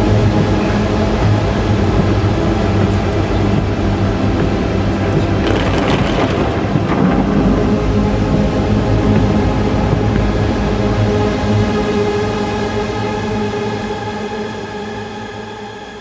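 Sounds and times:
heavy rain on a car: 5.1s - 8.7s.

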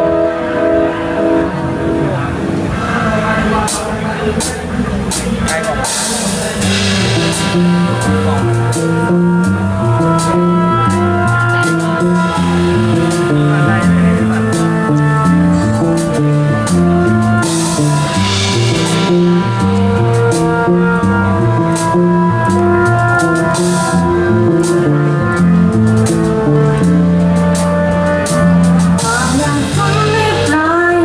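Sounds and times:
live pop band playing: 0.0s - 31.0s
woman singing: 29.0s - 31.0s.

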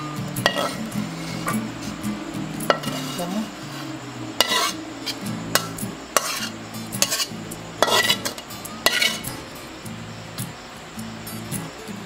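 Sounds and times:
metal spatula scraping frying pan: 0.4s - 2.0s, 2.7s - 9.4s.

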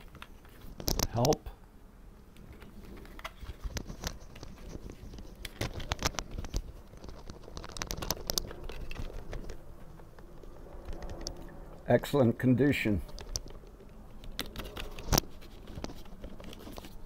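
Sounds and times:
plastic cd case clicking: 5.4s - 10.2s.

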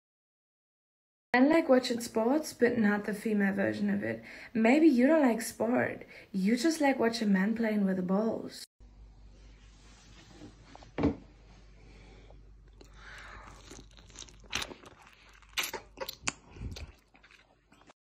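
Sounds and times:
crunching bites into lemon: 12.7s - 17.9s.

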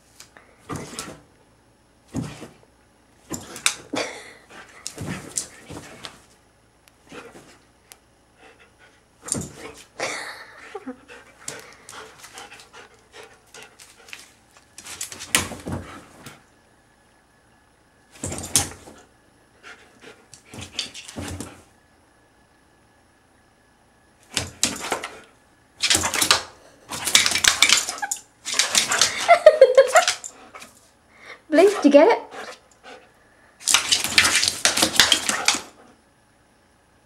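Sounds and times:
dog scratching at bed and floor: 33.6s - 35.8s.

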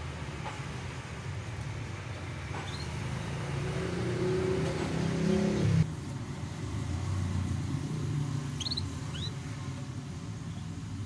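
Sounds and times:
canary chirping: 2.6s - 3.4s, 8.5s - 9.7s.

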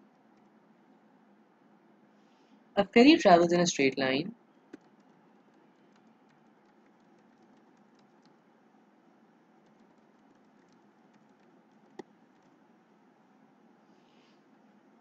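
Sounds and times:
low room hiss: 0.0s - 15.0s
computer keyboard typing: 0.1s - 0.6s, 4.7s - 8.5s, 9.6s - 12.6s.

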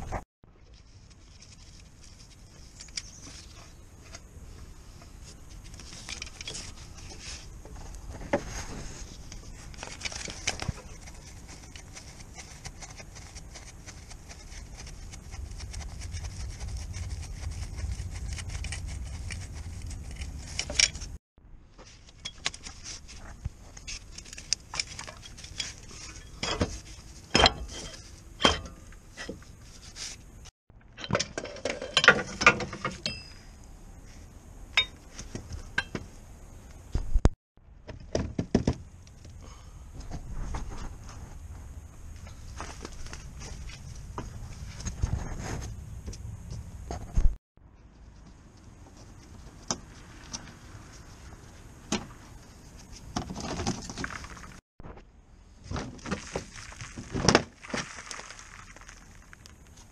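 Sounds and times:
low background rumble: 0.5s - 21.7s.

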